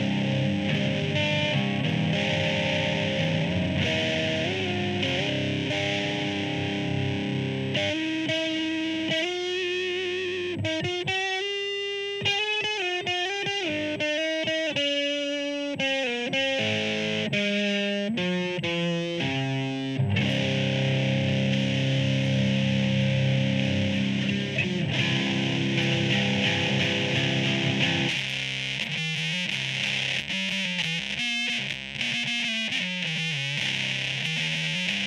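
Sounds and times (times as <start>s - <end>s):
distorted electric guitar: 0.0s - 35.0s.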